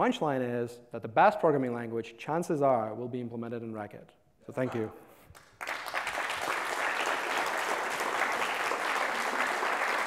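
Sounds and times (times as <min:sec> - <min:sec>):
audience applauding: 0:05.3 - 0:10.0.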